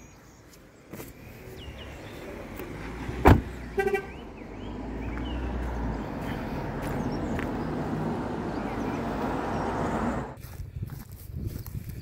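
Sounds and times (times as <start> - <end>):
car door slamming: 3.2 - 4.0
car horn double chirp: 3.8 - 4.2.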